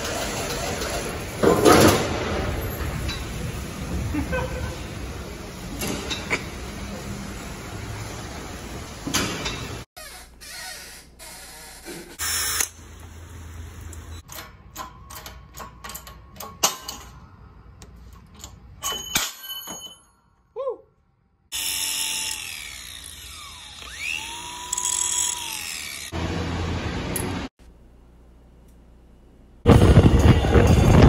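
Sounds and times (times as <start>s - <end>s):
power tool whining: 21.5s - 26.2s.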